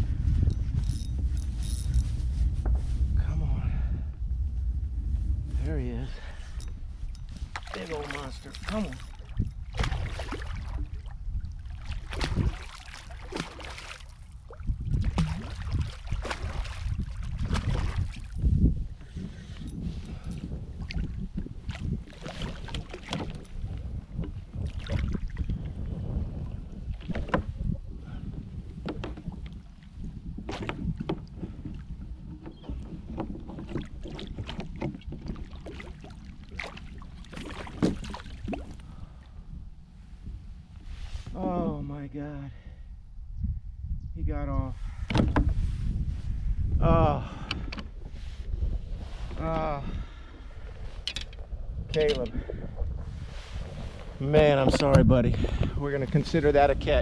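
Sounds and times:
low rumble: 0.0 - 22.2
wind rumble on microphone: 0.0 - 57.0
knocks against a kayak hull: 37.4 - 38.6, 45.1 - 45.6.

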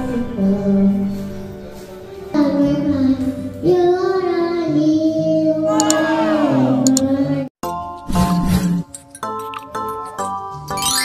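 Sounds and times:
child singing into a microphone: 0.0 - 7.5
karaoke backing track: 0.0 - 7.5.

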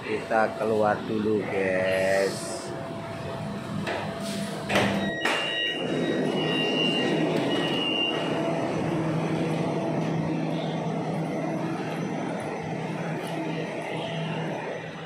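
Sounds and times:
train running noise: 0.0 - 15.0
low motor hum: 2.7 - 15.0
high warning beeps: 4.9 - 15.0.

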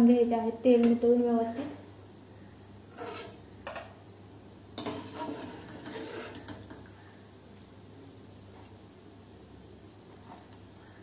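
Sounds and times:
spoon scraping a metal pan: 2.9 - 3.4, 4.8 - 6.8.

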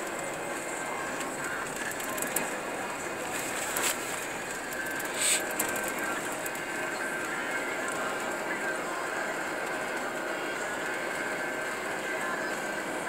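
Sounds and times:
road and tyre noise: 0.0 - 13.0
short hiss: 5.1 - 5.5.

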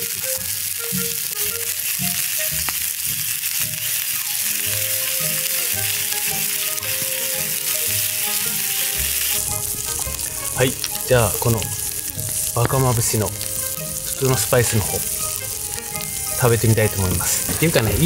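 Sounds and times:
soft background music with beat: 0.0 - 2.7
meat sizzling over fire: 0.0 - 18.0.

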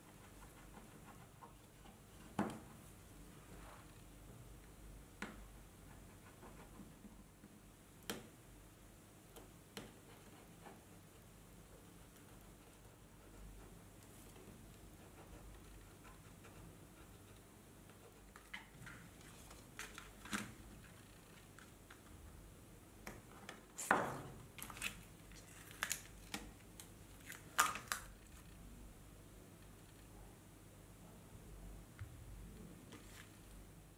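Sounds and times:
masking tape crinkling: 24.6 - 28.2.

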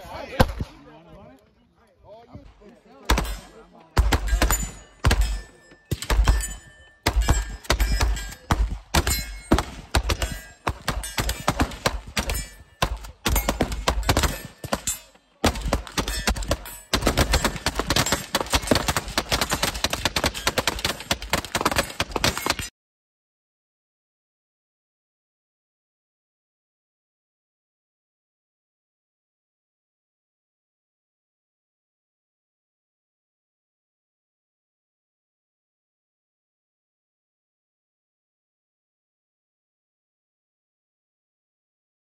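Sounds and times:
rapid gunfire: 3.1 - 22.7.

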